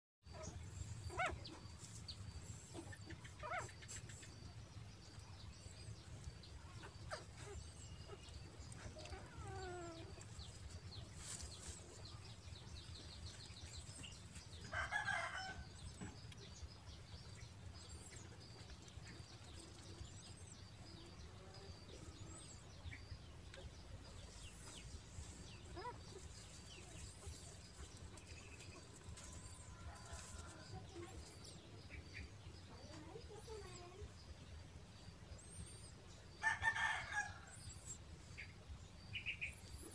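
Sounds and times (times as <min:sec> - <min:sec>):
small birds chirping: 0:00.2 - 0:39.9.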